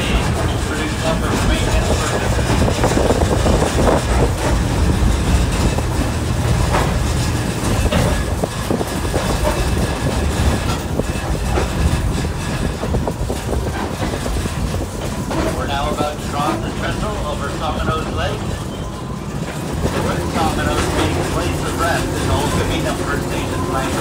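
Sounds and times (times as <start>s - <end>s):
clicks and rattles: 0.0s - 17.0s
train wheels rumbling on rails: 0.0s - 24.0s.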